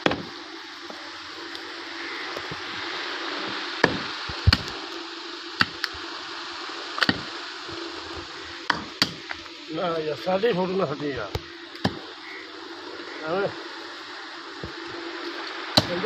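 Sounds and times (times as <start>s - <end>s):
steady hiss: 0.0s - 16.0s.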